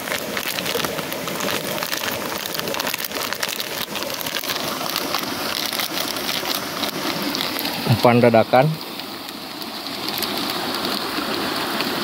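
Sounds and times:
snack packet crinkling: 0:00.0 - 0:07.9.

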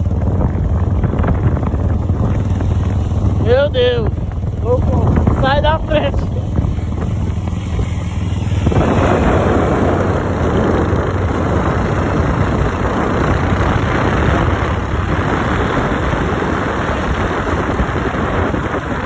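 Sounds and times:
motorcycle engine hum: 0:00.0 - 0:19.0
wind and road noise: 0:00.0 - 0:19.0.

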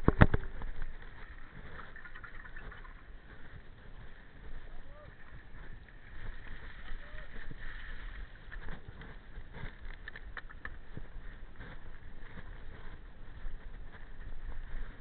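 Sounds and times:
bike rattling over stones: 0:00.0 - 0:04.5, 0:05.2 - 0:13.4.

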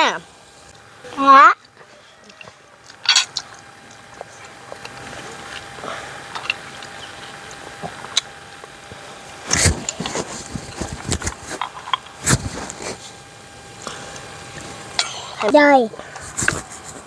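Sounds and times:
snail shells clicking and knocking: 0:01.6 - 0:08.8.

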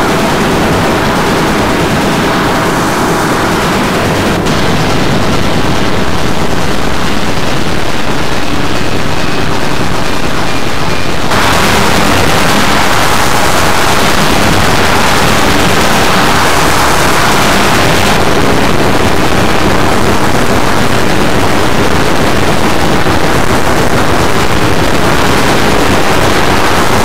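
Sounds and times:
distorted synthesized noise loops: 0:00.0 - 0:27.0
bright hissy synth layer: 0:08.7 - 0:19.9.

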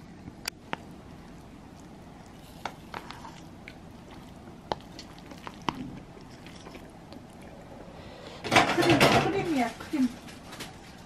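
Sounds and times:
noodles squishing: 0:00.0 - 0:08.4.

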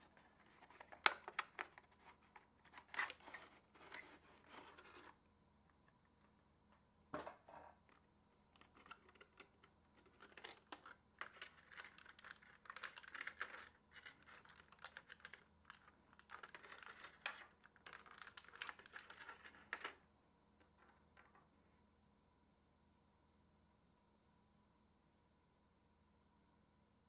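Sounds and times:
plastic tray clicking and crackling: 0:00.0 - 0:05.1, 0:08.5 - 0:20.0.

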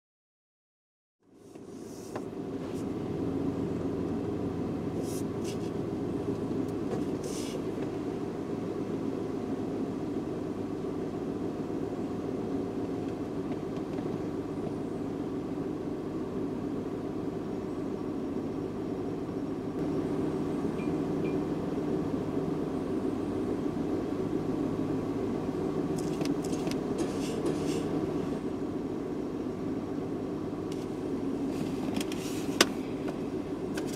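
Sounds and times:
car engine idling: 0:01.2 - 0:33.9
short hissy sounds: 0:01.4 - 0:02.9, 0:05.0 - 0:05.8, 0:07.2 - 0:07.7, 0:27.0 - 0:28.0.

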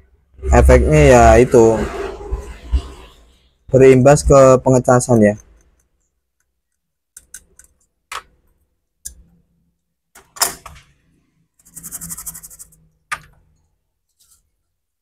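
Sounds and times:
small brush scrubbing: 0:11.6 - 0:12.8.

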